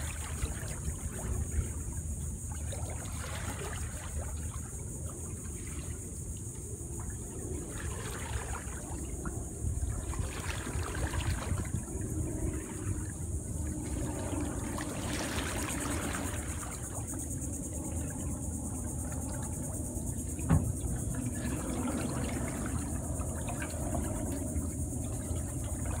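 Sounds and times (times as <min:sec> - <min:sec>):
insects buzzing: 0:00.0 - 0:26.0
paddle strokes swishing in water: 0:07.0 - 0:26.0.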